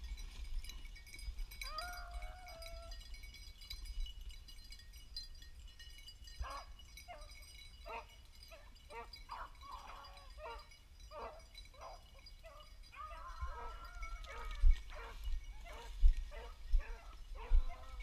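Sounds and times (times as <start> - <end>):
hounds baying: 1.6 - 3.1, 6.4 - 18.0.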